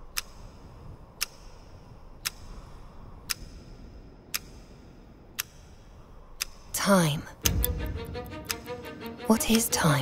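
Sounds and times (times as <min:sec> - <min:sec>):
clock ticking: 0:00.0 - 0:03.7, 0:04.3 - 0:10.0
steady low rumble: 0:00.0 - 0:10.0.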